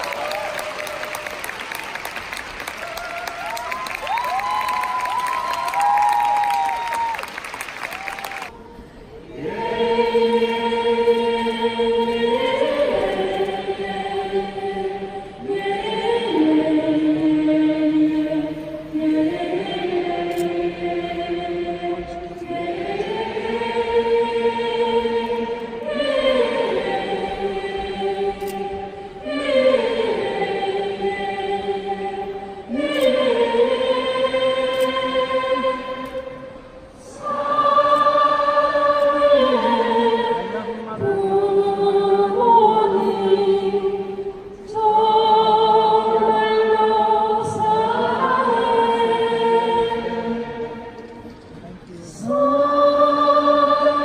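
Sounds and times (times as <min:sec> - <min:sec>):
woman singing into a microphone: 0:37.0 - 0:50.9.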